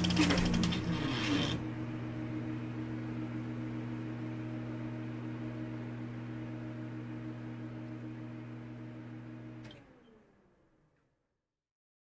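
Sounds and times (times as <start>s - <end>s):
rapid mechanical clatter: 0.0s - 1.6s.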